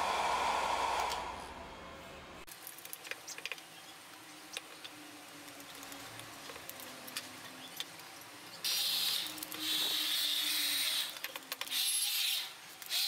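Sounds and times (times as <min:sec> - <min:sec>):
hair dryer blowing air: 0:00.0 - 0:01.8.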